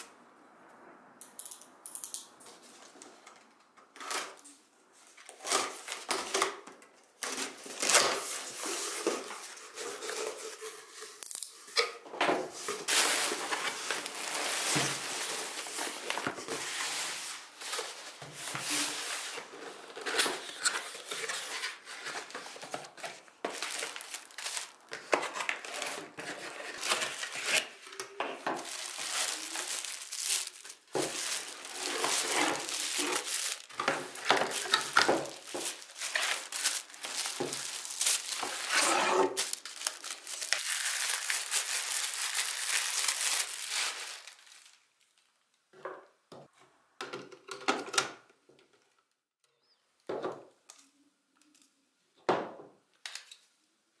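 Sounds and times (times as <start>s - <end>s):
plastic packaging crinkling: 12.6s - 45.2s
cardboard flaps rustling: 28.6s - 40.6s.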